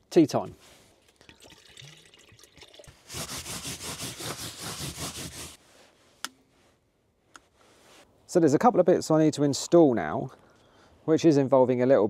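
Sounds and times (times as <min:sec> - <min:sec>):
water trickling into kettle: 0:01.0 - 0:03.1
paper towel rubbing: 0:03.1 - 0:05.6.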